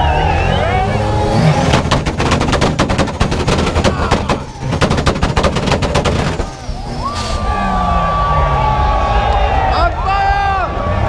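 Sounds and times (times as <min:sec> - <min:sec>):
car exhaust pops and bangs: 0:01.4 - 0:06.9.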